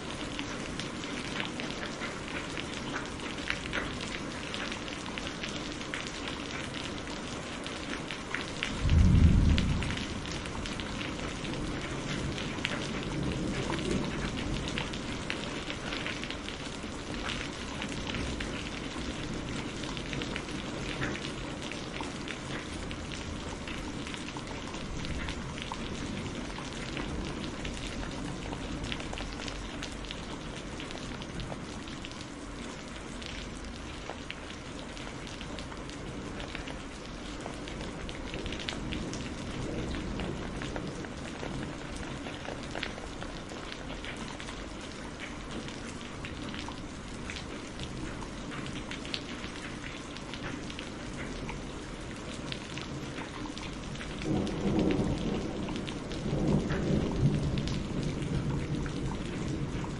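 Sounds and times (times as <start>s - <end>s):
heavy rain: 0.0s - 59.9s
raindrop hits: 8.2s - 32.0s, 33.4s - 59.9s
low rumble: 8.9s - 10.5s.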